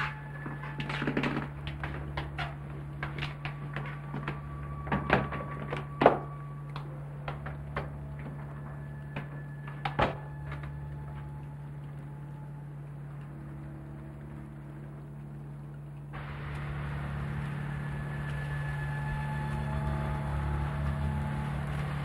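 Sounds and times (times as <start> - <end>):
door shutting: 0.0 - 11.3
footsteps and small knocks: 0.0 - 21.2
steady low hum: 0.0 - 22.0.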